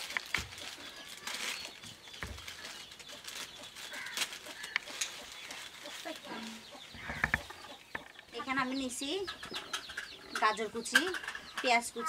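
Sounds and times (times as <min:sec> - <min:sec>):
plastic packets rustling: 0:00.0 - 0:07.6
chickens clucking: 0:00.0 - 0:12.0.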